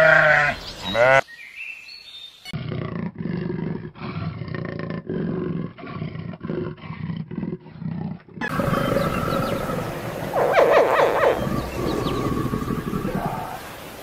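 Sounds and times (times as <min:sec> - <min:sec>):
big cat roaring: 0:10.3 - 0:13.7.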